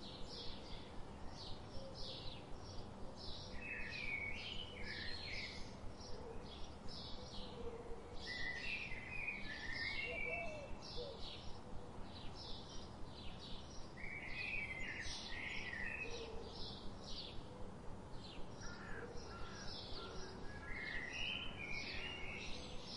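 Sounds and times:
low background hiss: 0.0s - 22.9s
small birds chirping: 8.2s - 17.5s.

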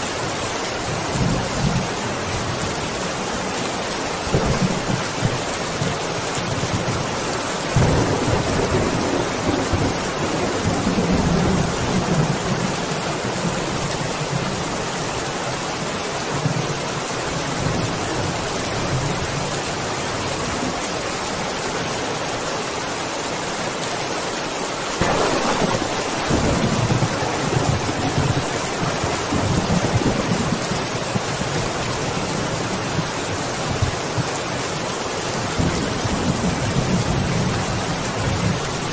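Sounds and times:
steady rain: 0.0s - 38.9s
rolling thunder: 7.7s - 13.5s, 25.0s - 34.0s.

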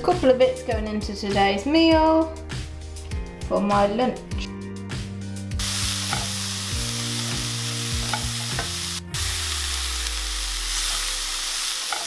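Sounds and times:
vegetables sizzling in a frying pan: 5.6s - 12.0s.

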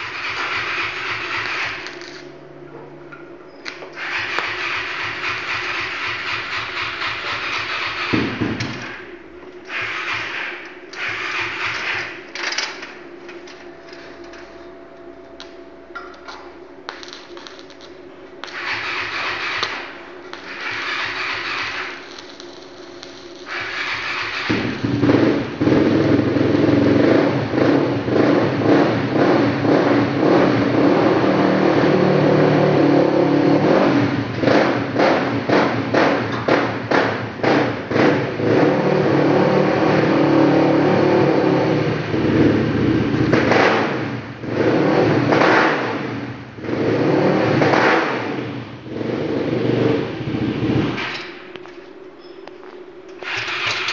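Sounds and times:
sharp popping of welding arc: 0.0s - 2.4s, 3.6s - 13.0s, 15.4s - 25.7s, 52.5s - 53.9s
welding arc crackling and hissing: 0.0s - 2.4s, 3.7s - 14.4s, 16.2s - 27.5s
steady low hum: 0.0s - 53.9s.

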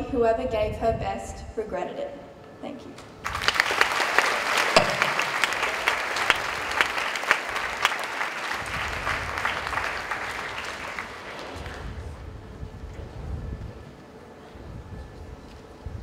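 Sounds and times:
audience applauding: 3.2s - 11.9s.

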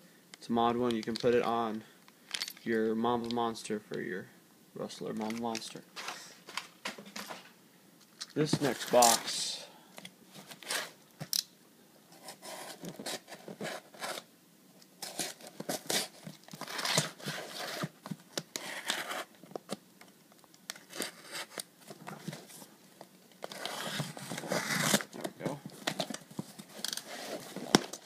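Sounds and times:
packing tape being cut and torn: 15.0s - 19.4s, 20.7s - 21.7s, 23.4s - 25.3s.

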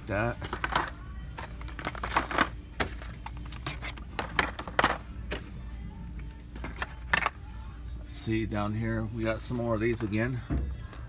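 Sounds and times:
plastic and card packages clicking: 0.2s - 5.5s, 6.6s - 7.4s.

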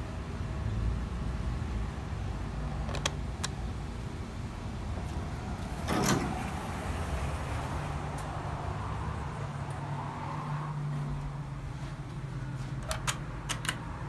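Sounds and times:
elevator doors sliding open: 5.6s - 7.6s
sharp clicks: 12.8s - 13.9s.

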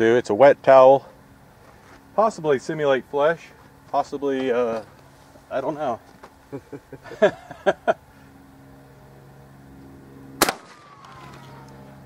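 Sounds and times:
steady low hum: 0.0s - 12.0s
shotgun shot: 10.4s - 11.4s.

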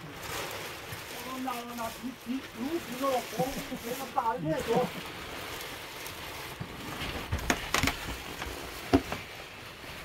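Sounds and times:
objects knocking and clattering: 6.4s - 9.5s.

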